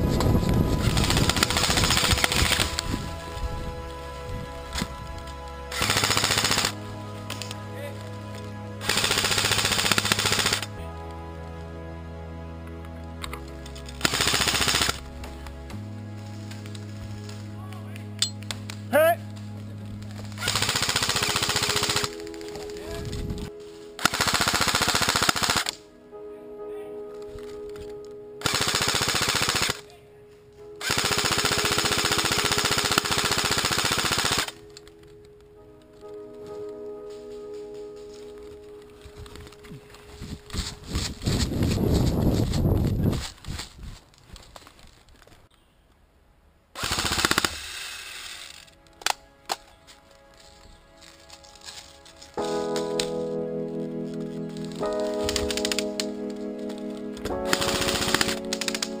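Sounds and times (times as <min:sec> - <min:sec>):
background music with sustained chords: 0:00.0 - 0:41.5, 0:46.2 - 0:59.0
airsoft rifle firing on full auto: 0:00.8 - 0:02.7, 0:05.7 - 0:06.8, 0:08.8 - 0:10.7, 0:14.0 - 0:15.0, 0:20.4 - 0:22.1, 0:24.0 - 0:25.8, 0:28.4 - 0:29.8, 0:30.8 - 0:34.6, 0:46.8 - 0:48.0, 0:57.4 - 0:58.9.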